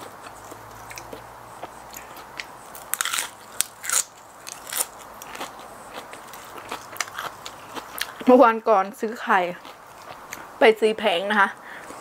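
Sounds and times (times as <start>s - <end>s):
chewing crisp lettuce: 0.0s - 8.3s, 9.4s - 10.5s.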